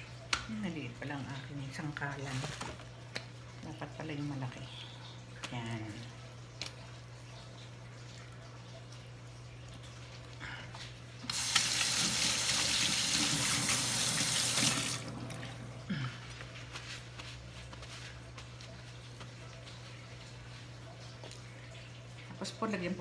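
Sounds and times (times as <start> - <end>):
faucet running into steel sink: 11.3 - 15.5.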